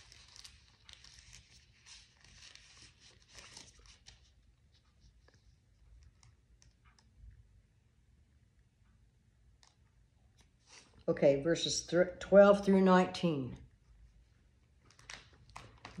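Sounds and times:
thin pages rustling: 0.0s - 5.5s, 10.4s - 11.0s, 14.8s - 16.0s.

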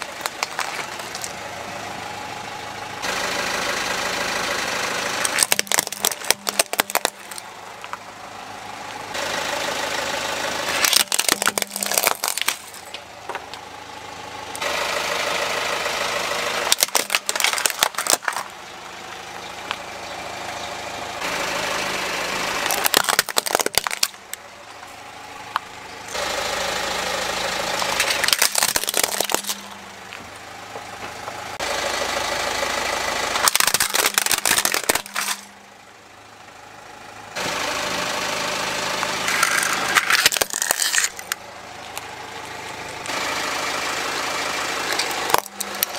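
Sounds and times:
plastic toys crunching under tyre: 0.0s - 1.4s, 5.2s - 8.0s, 10.7s - 13.6s, 16.6s - 18.6s, 22.5s - 26.2s, 27.6s - 30.4s, 33.3s - 35.6s, 38.9s - 43.2s, 44.8s - 45.9s
car engine running: 0.0s - 45.9s.

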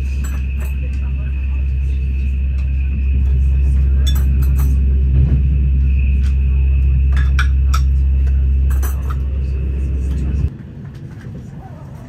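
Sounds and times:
clinks and rattles: 0.0s - 1.3s, 2.6s - 5.1s, 6.2s - 10.5s
high whine: 0.0s - 11.2s
train low rumble: 0.0s - 12.0s.

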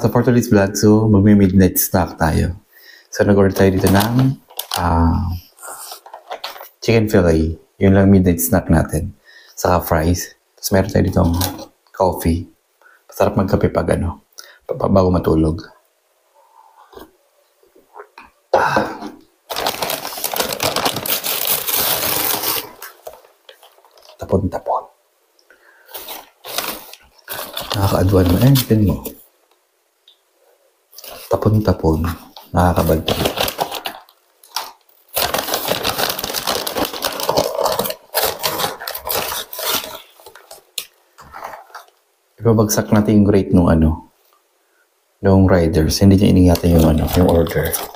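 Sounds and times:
paper bag crackling: 3.6s - 5.2s, 19.5s - 24.4s, 25.9s - 29.2s, 31.0s - 41.9s, 46.4s - 47.9s.

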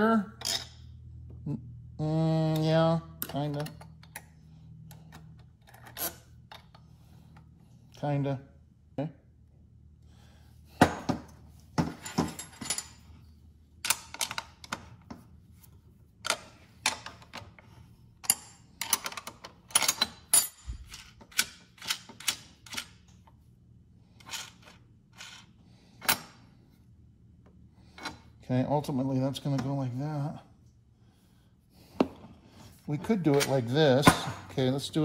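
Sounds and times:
metal washers and nuts clinking: 0.4s - 0.9s, 10.9s - 14.9s, 18.2s - 23.2s.

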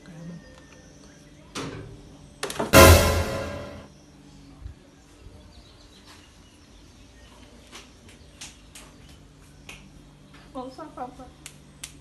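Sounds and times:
loud sound: 2.8s - 3.8s.

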